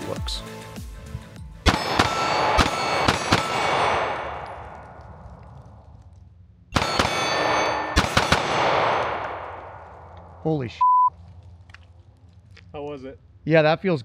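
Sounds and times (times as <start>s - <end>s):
pistol shots with echo: 1.6s - 5.3s, 6.7s - 10.4s.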